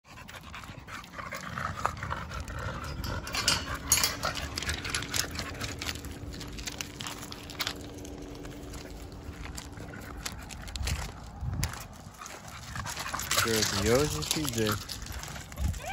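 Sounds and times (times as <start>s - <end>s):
paws scuffing on gravel: 0.1s - 15.9s
metal chain collars jingling: 2.6s - 5.7s.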